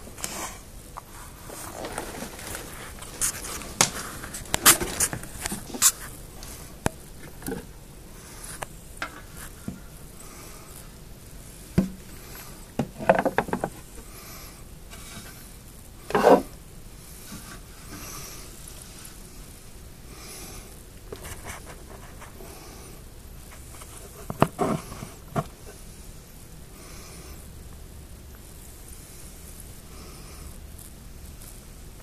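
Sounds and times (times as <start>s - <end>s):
rubbing and scraping: 0.0s - 9.9s, 11.8s - 14.1s, 14.9s - 16.6s, 21.1s - 22.5s, 23.4s - 25.8s.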